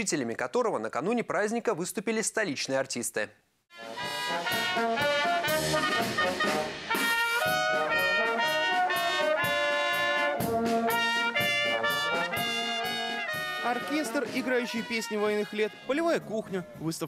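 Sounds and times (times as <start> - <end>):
brass band playing: 3.7 - 17.0.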